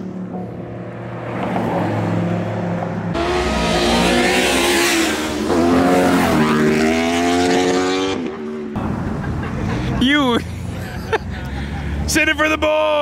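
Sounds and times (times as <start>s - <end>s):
car engine accelerating hard: 1.8s - 8.4s.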